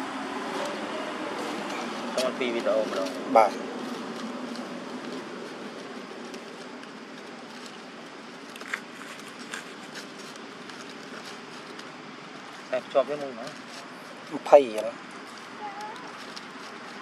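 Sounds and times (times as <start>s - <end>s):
dry leaves crackling: 0.0s - 17.0s
outdoor background hiss: 0.0s - 17.0s.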